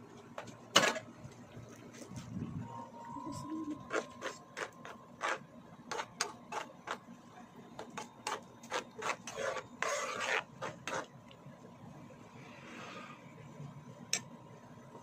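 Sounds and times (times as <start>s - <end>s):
metal spoon scraping frying pan: 3.8s - 7.0s, 7.8s - 11.1s.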